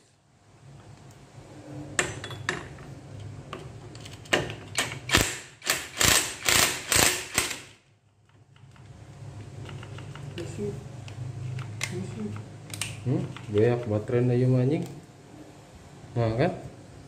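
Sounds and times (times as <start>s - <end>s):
impact wrench ratcheting bursts: 4.8s - 7.8s.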